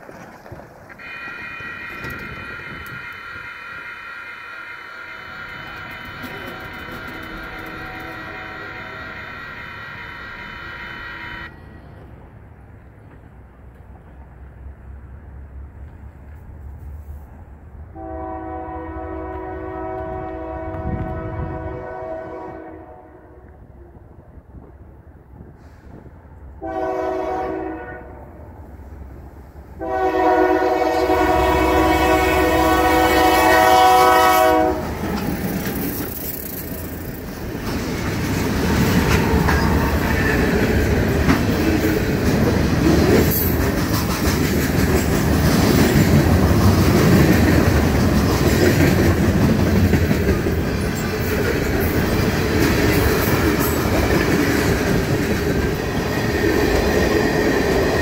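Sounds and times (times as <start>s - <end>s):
locomotive rumbling past: 0.0s - 58.0s
locomotive horn blasts: 1.0s - 11.6s, 17.9s - 23.6s, 26.6s - 28.4s, 29.8s - 35.2s.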